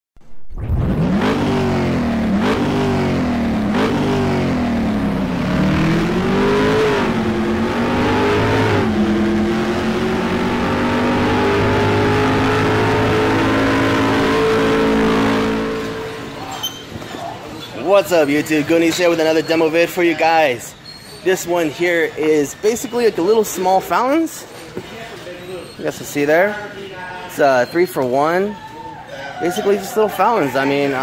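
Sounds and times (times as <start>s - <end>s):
car engine accelerating: 0.2s - 16.7s.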